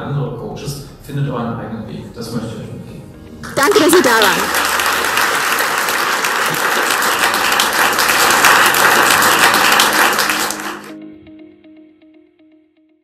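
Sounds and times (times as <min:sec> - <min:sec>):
soft background music plucked notes: 0:00.0 - 0:12.9
audience clapping: 0:03.4 - 0:11.0.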